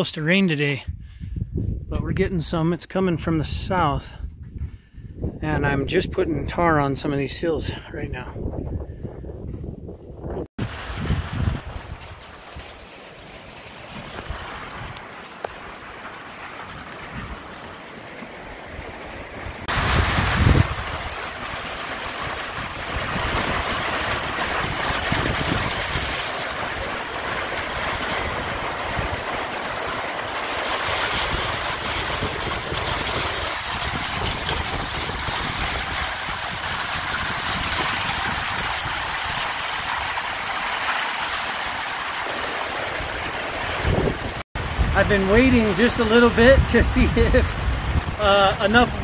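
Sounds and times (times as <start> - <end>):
wind buffeting microphone: 0.8 - 2.6, 3.2 - 12.9, 16.7 - 17.7, 18.5 - 40.4, 43.0 - 49.0
rain on metal roof: 10.6 - 49.0.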